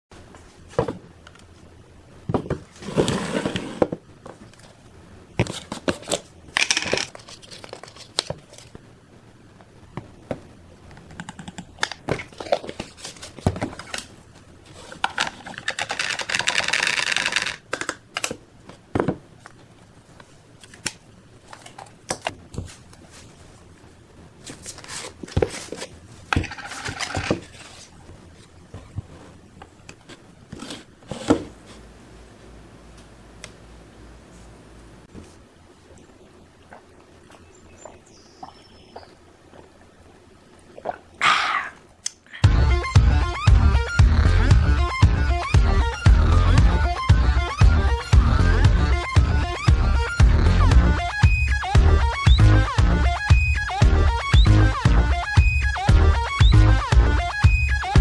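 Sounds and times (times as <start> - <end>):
rustling: 5.4 - 8.9, 12.1 - 17.6, 24.4 - 31.9.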